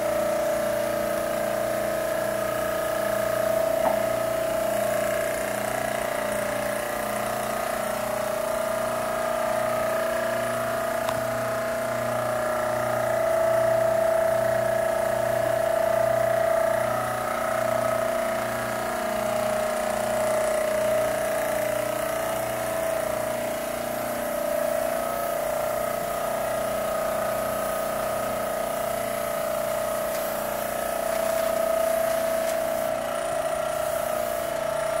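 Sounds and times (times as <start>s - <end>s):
spray rig whine: 19.8s - 35.0s
paint spray hiss: 22.6s - 35.0s.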